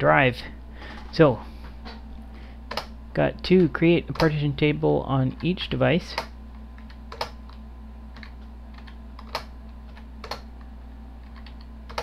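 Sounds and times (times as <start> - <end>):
steady low hum: 0.0 - 12.0
keyboard keys clicking: 6.2 - 7.4, 8.2 - 10.5, 11.2 - 12.0.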